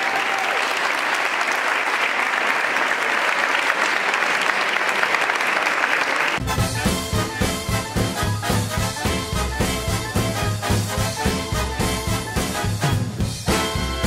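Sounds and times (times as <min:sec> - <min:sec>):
crowd clapping: 0:00.0 - 0:09.2
swing band music with brass: 0:06.4 - 0:14.0.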